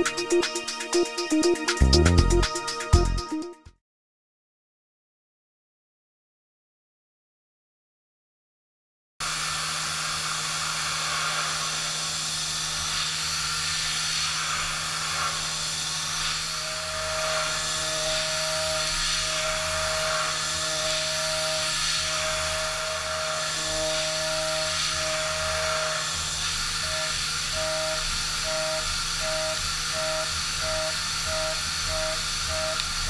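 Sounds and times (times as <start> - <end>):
high cutter tone: 0.0 - 3.5, 14.4 - 33.0
milling machine hum and hiss: 9.2 - 33.0.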